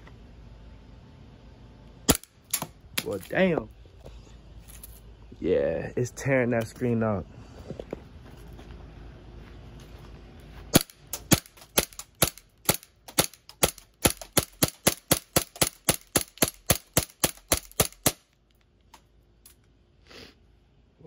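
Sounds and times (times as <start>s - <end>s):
bb pistol firing rapidly: 10.8s - 18.3s.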